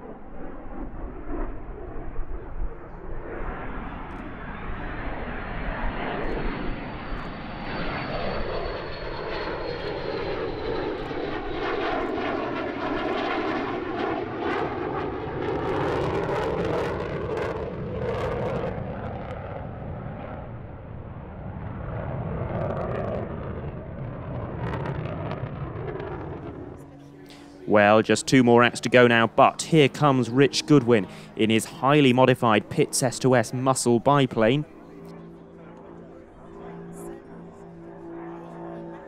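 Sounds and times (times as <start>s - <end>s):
jet flying past: 0.0s - 39.0s
high whine: 23.3s - 37.8s.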